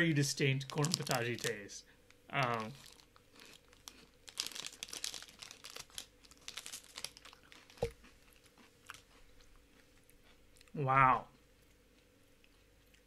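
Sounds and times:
wrapper crinkling and rustling: 0.5s - 1.7s, 2.4s - 9.0s.

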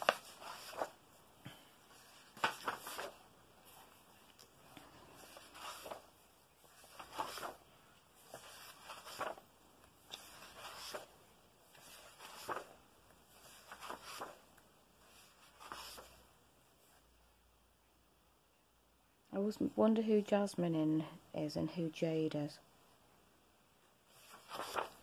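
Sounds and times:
paper pages rustling: 0.0s - 16.3s, 24.0s - 25.0s.

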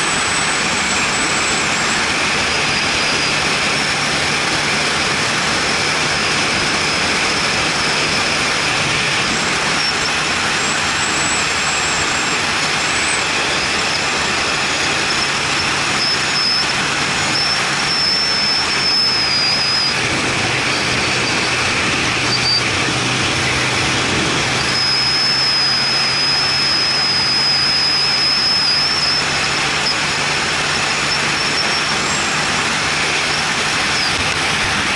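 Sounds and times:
low engine hum: 0.0s - 34.9s
wind and road noise: 0.0s - 34.9s
thin high whistle: 9.2s - 20.0s, 22.3s - 22.7s, 24.6s - 32.4s.

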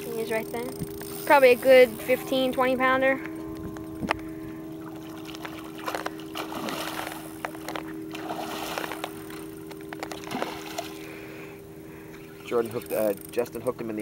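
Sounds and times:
steady low hum: 0.0s - 14.0s
water splashing and sloshing: 4.0s - 12.9s.

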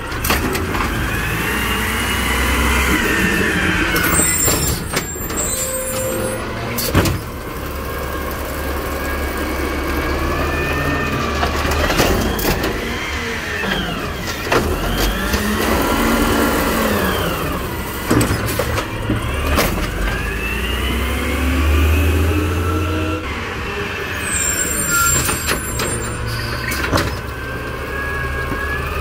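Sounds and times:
garbage truck engine revving: 0.0s - 29.0s
hydraulic lift arm whining: 0.1s - 7.8s, 8.8s - 29.0s
knocks and bangs from cart: 6.8s - 7.4s, 18.0s - 20.0s.

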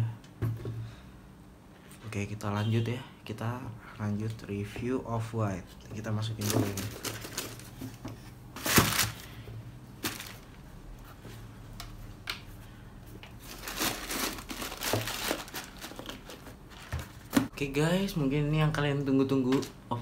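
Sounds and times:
tissue paper crinkling: 6.4s - 8.0s, 8.6s - 9.3s, 10.0s - 10.5s, 13.4s - 17.4s.

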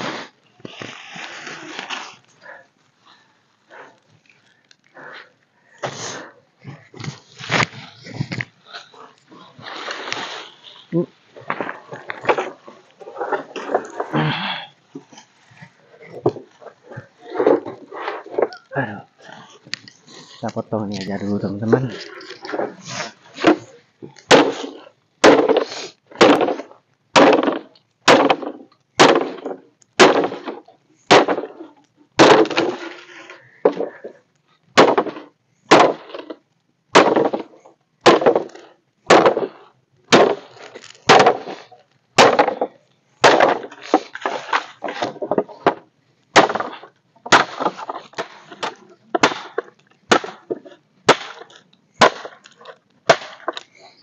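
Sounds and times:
blade chopping into wooden pole: 52.0s - 52.4s.

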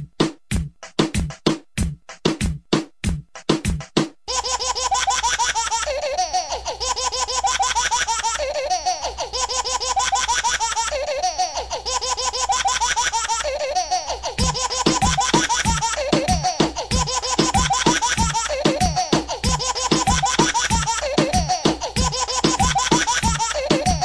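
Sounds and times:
drum machine beats: 0.0s - 4.2s, 14.4s - 24.0s
shrill high-pitched laughter: 4.3s - 24.0s.

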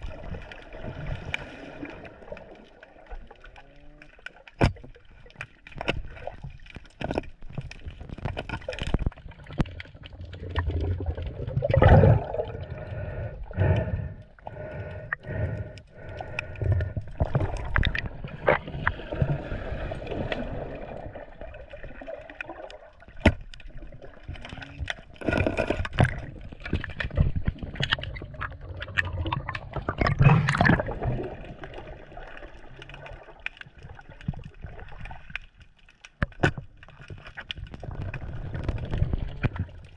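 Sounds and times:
seawater sloshing and splashing: 17.1s - 35.6s.

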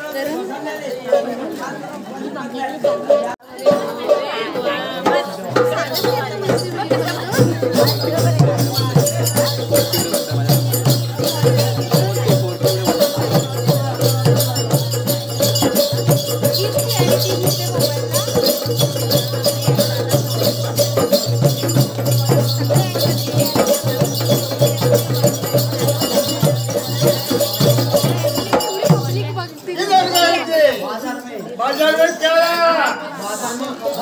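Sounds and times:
jingling bells: 0.0s - 34.0s
hand drums beating fast rhythm: 2.8s - 30.5s.

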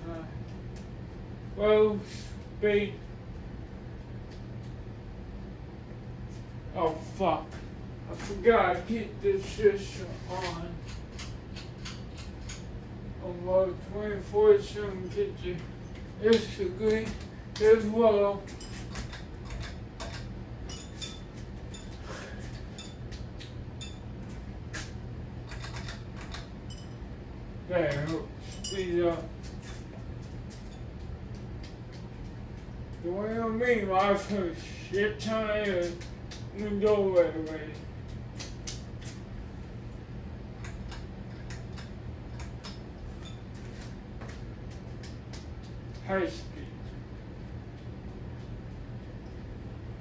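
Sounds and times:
ceiling fan motor humming: 0.0s - 50.0s
light clicks and clinks: 18.5s - 27.0s, 27.9s - 33.0s, 40.6s - 46.0s.

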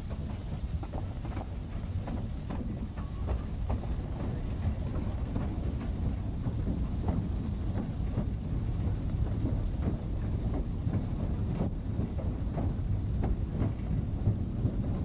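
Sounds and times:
steam train rumbling: 0.0s - 15.0s.

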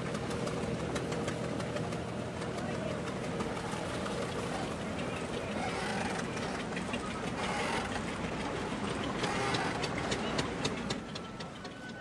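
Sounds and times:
boat engine running: 0.0s - 12.0s
sharp clicks and clatters: 5.7s - 12.0s.

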